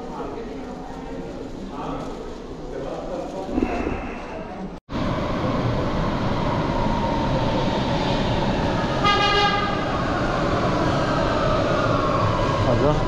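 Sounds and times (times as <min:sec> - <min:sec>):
train rumble: 0:00.0 - 0:13.0
train horn toot: 0:09.0 - 0:09.9.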